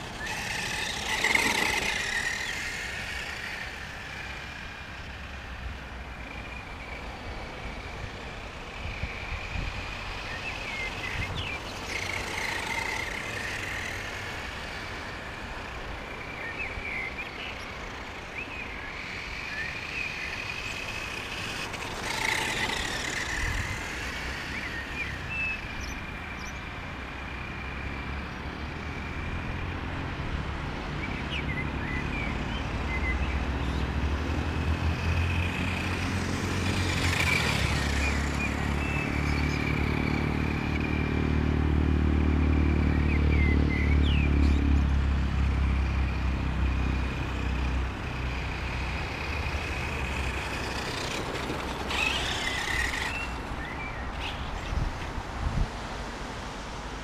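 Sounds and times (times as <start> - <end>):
rc truck motor whining: 0.0 - 29.6, 31.2 - 44.6, 45.4 - 55.3
wind rumble on microphone: 54.4 - 56.1.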